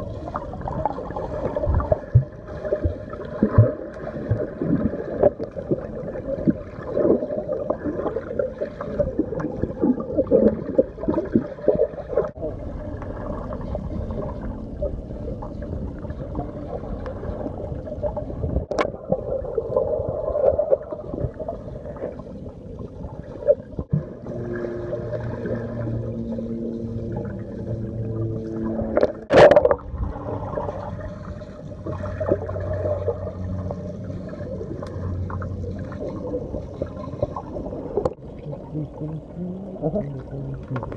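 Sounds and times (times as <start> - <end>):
underwater bubbles gurgling: 0.0 - 40.9
steady low hum: 12.3 - 18.7, 21.2 - 40.9.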